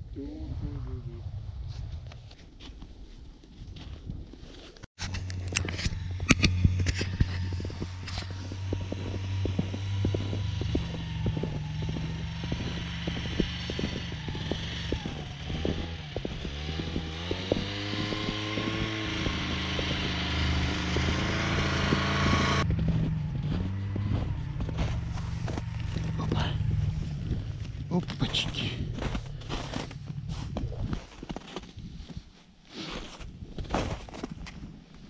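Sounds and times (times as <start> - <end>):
knocks and rattles over snow: 1.7 - 35.0
snowmobile engine running: 5.0 - 31.7.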